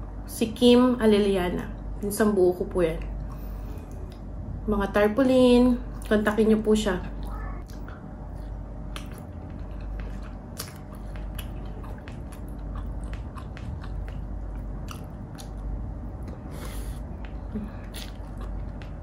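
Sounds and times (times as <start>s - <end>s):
person chewing with wet mouth clicks: 8.9s - 19.0s.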